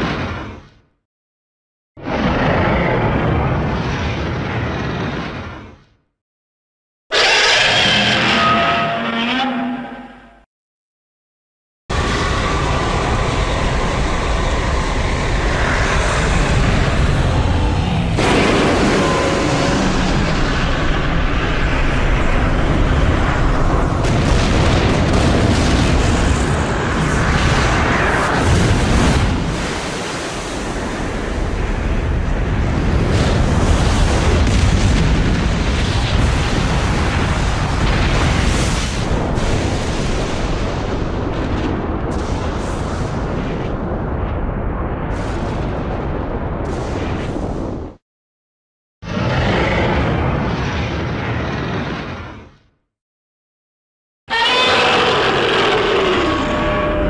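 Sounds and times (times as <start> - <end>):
monster rough rumbling: 2.0 - 5.9, 11.9 - 29.8, 49.0 - 52.5, 54.3 - 57.0.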